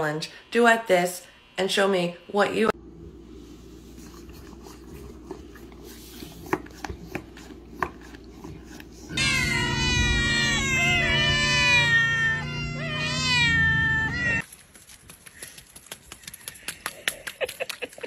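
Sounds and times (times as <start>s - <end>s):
cats meowing: 9.1s - 14.4s.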